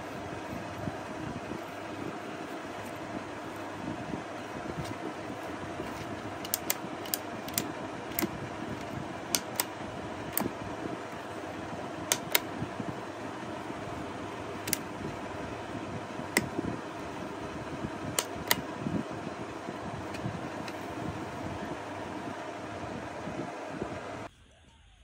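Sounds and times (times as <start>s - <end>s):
fan whir: 0.0s - 24.3s
plastic clicks and taps: 5.9s - 9.7s, 12.1s - 12.5s, 14.6s - 14.8s.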